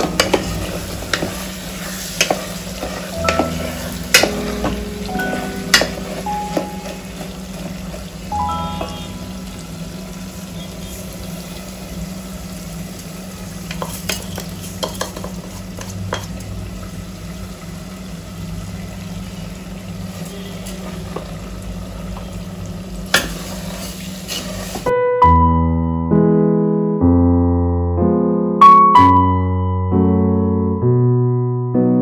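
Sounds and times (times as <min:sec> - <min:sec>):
light sizzle: 0:00.0 - 0:24.9
wooden spatula scraping a pot: 0:00.1 - 0:04.3, 0:23.2 - 0:24.9.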